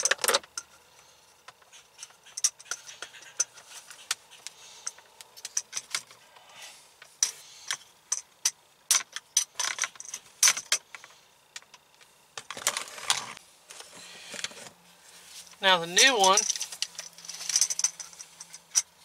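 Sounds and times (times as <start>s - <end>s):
scraping rustles: 12.5s - 19.0s.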